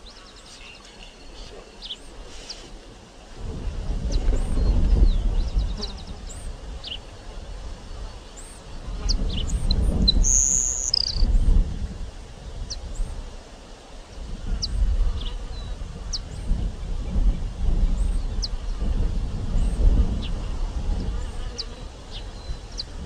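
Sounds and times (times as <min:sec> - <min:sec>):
wind on the microphone: 0:00.0 - 0:23.0
sparrow singing: 0:08.4 - 0:11.3.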